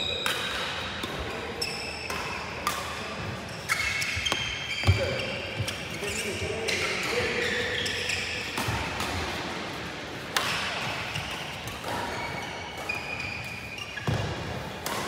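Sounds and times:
racket striking shuttlecock: 8.4s - 9.4s, 10.3s - 13.1s, 14.0s - 15.0s.

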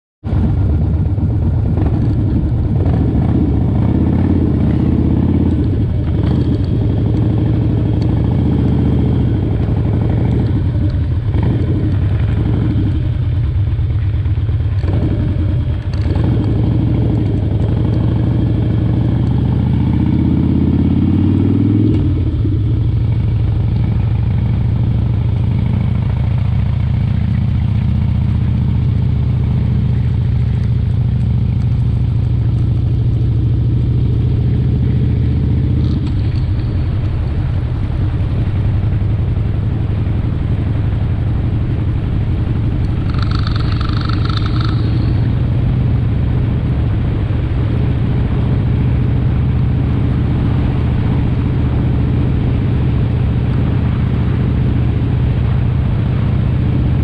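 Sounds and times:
small vehicle engine running: 40.7s - 48.6s.

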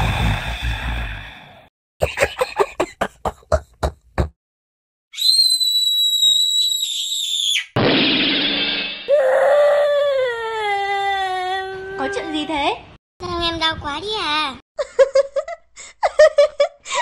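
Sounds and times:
high-pitched whistling tone: 5.2s - 7.7s.

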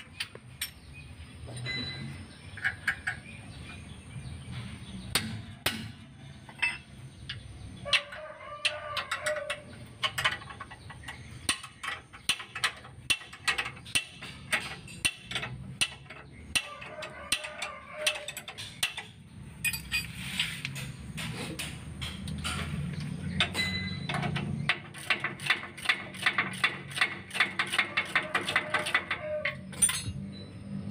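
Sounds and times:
rooster crowing: 7.8s - 9.7s, 16.6s - 18.4s, 27.8s - 29.7s.

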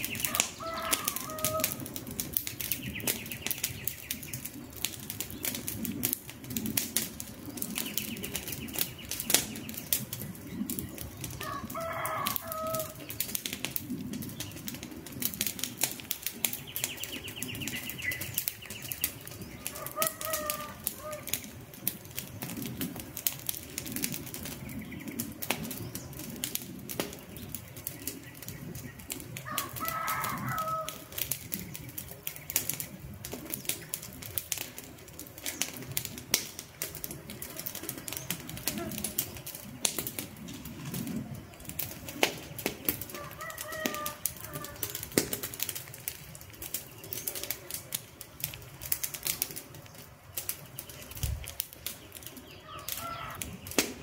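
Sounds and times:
bird calling: 0.0s - 1.9s, 16.5s - 21.6s, 52.0s - 54.0s
campfire crackling and popping: 0.0s - 54.0s.

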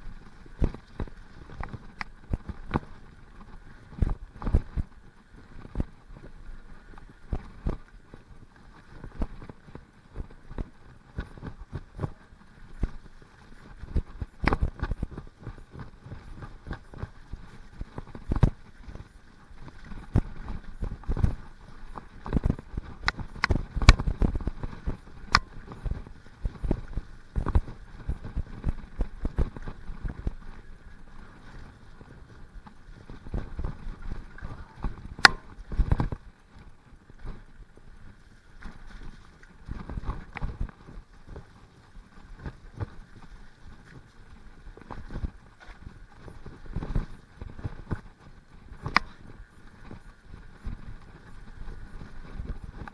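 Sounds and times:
tyres rumbling on dirt trail: 0.0s - 52.9s
bike knocking and rattling: 13.8s - 37.4s.

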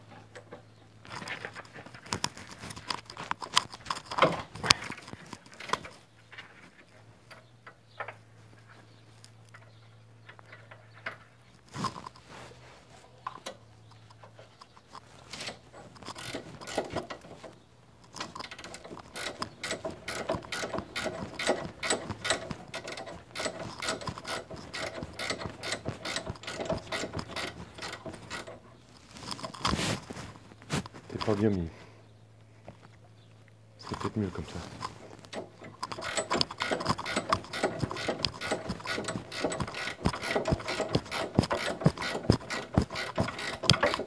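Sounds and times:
ratcheting spanner clicking: 13.3s - 29.7s, 33.8s - 44.0s.

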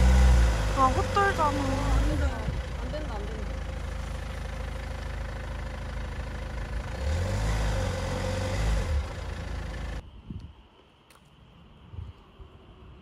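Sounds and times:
car engine revving: 0.0s - 10.0s.

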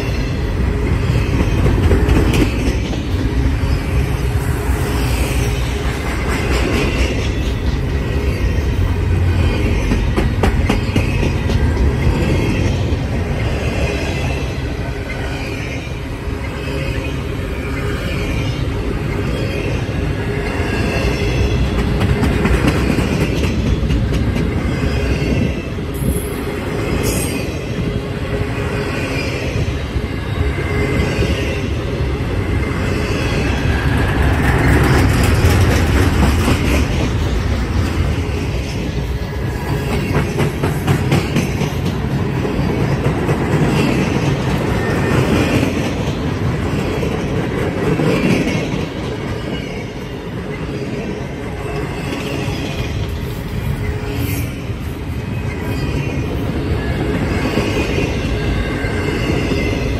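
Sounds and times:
steel wheels rumbling on rails: 0.0s - 59.9s
wheels clacking over rail joints: 33.8s - 38.4s.

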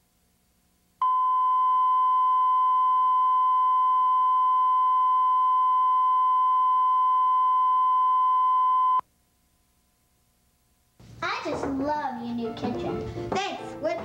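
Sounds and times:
steady test tone: 1.0s - 9.0s.

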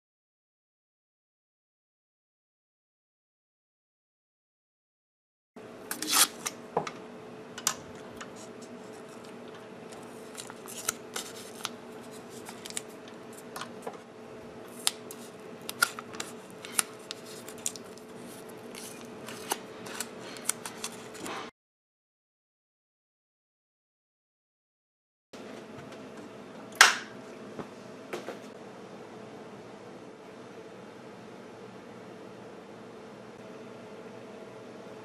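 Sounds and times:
steady hum: 5.6s - 21.4s
tape crinkling and clicking: 7.6s - 13.8s, 14.7s - 21.4s.

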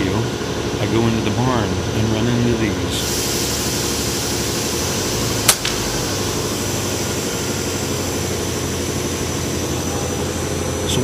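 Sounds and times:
steady low hum: 0.0s - 11.0s
air rifle shot crack: 5.4s - 5.9s.

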